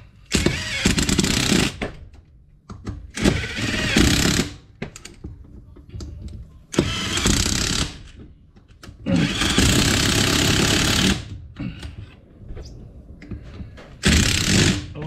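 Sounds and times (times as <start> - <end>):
impact wrench running bolts: 14.0 - 14.9.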